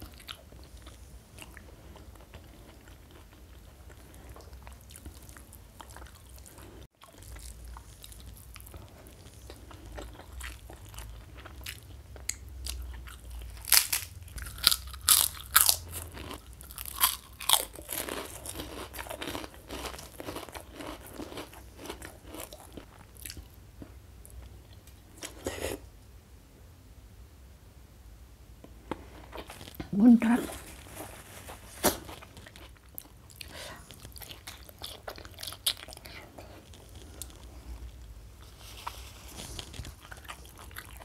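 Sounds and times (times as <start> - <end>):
soft chewing: 0.0 - 25.9, 28.6 - 41.0
cracker crunching: 2.2 - 23.9.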